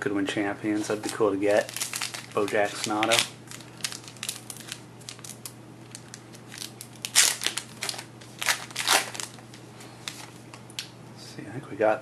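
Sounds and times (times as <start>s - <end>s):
card pack wrapper crinkling: 0.9s - 10.4s.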